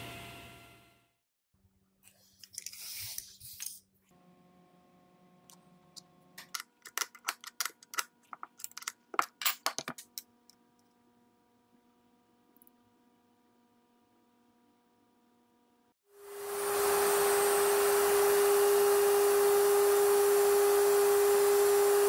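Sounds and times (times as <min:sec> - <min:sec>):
router bit clicking and rattling: 0:06.4 - 0:10.2.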